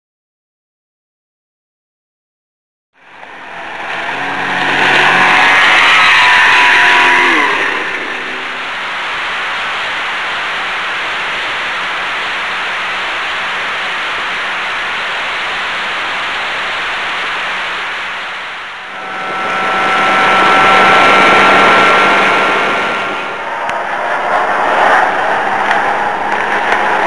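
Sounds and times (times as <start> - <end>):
outboard motor whining: 3.0 - 11.0, 17.1 - 27.0
rush of wind and water: 3.0 - 27.0.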